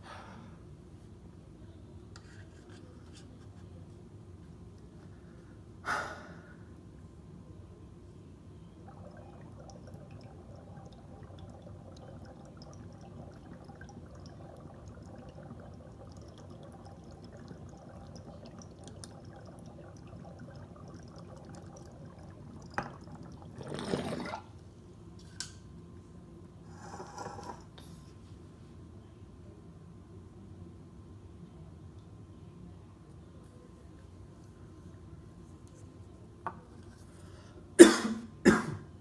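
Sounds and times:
water bubbling in bubbler: 0:08.8 - 0:24.5.

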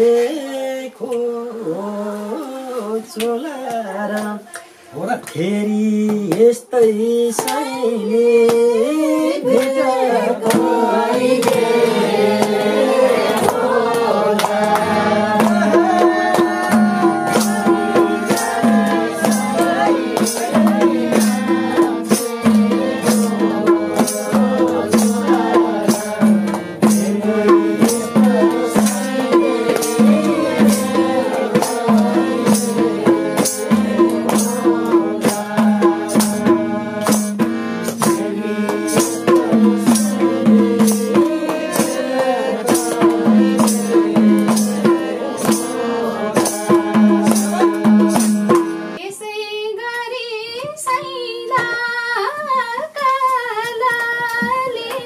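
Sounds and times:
person singing: 0:05.4 - 0:37.4, 0:38.0 - 0:55.0
folk instruments: 0:07.4 - 0:50.1
steady drum beat: 0:10.4 - 0:49.0.

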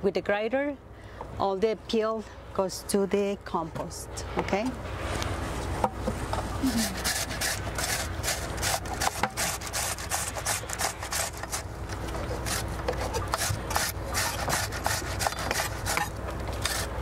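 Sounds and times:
tomatoes scraping on metal grater: 0:06.6 - 0:11.7, 0:12.3 - 0:17.0.

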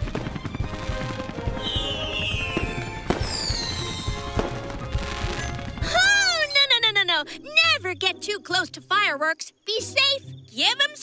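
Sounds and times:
firework bangs: 0:00.0 - 0:06.1
firework whistles falling in pitch: 0:01.5 - 0:04.5.

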